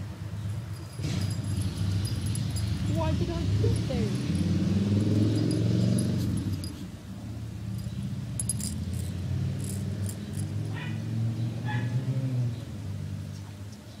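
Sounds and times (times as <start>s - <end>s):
dog collar tags jingling: 0.4s - 7.0s, 7.7s - 11.0s.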